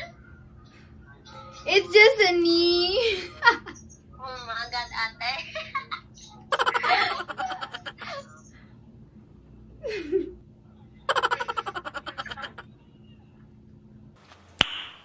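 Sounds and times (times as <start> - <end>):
woman giggling: 5.6 - 8.4, 9.8 - 10.4, 11.1 - 12.7.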